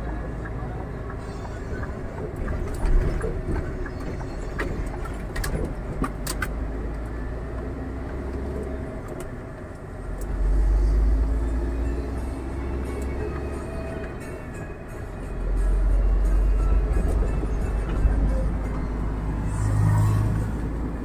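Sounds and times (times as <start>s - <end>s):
road noise: 0.0s - 21.0s
truck diesel engine rumble: 0.0s - 21.0s
cab clicks and rattles: 1.8s - 6.6s.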